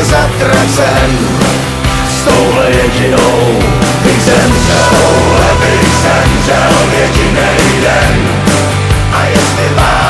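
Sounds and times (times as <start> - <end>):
loud rock song: 0.0 - 10.0.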